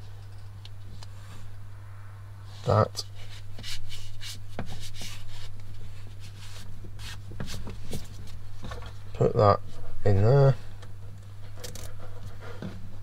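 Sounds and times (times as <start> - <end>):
steady low hum: 0.0 - 13.0
rustles and scrapes of tubing: 2.5 - 10.8, 11.4 - 13.0.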